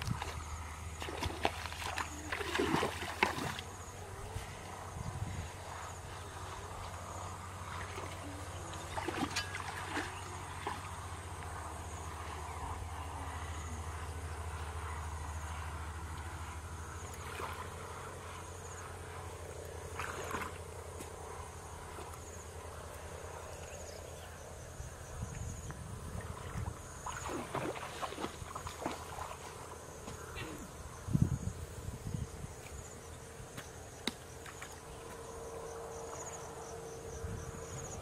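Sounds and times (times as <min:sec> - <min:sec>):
faint high insect chirp: 0:00.0 - 0:38.0
steady low rumble: 0:00.0 - 0:38.0.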